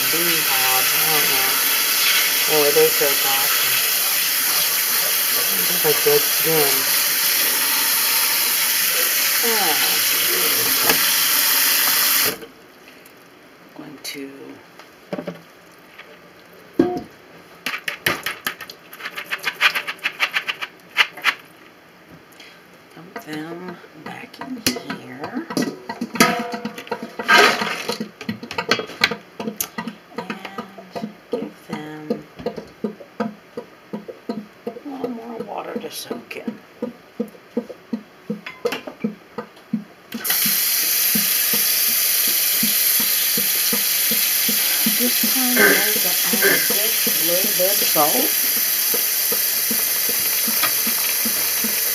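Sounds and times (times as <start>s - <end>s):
tap water running into steel bowl: 0.0s - 12.4s, 40.2s - 51.9s
beans rattling in colander: 17.7s - 21.5s, 40.2s - 51.9s
colander knock: 24.7s - 31.1s.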